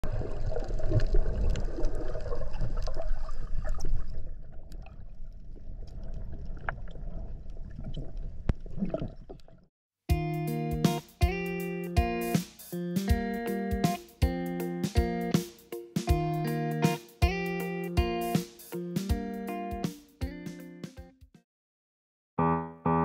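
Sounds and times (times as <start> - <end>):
underwater rush of water: 0.0 - 9.5
underwater crackling and clicks: 0.1 - 9.6
plucked guitar music: 10.1 - 21.1, 22.4 - 23.0.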